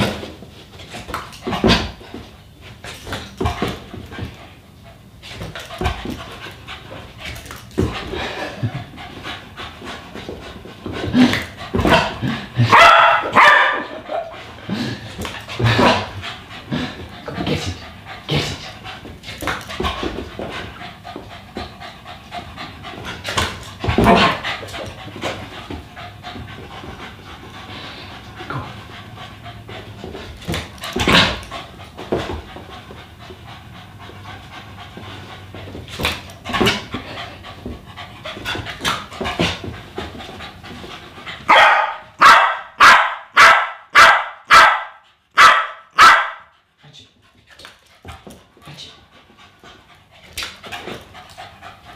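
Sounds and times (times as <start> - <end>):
dog panting: 3.6 - 12.7, 14.1 - 41.5, 46.5 - 51.9.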